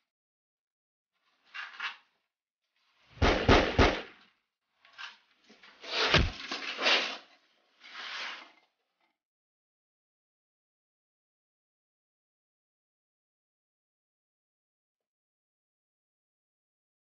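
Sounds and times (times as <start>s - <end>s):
handgun shots: 3.2s - 4.1s.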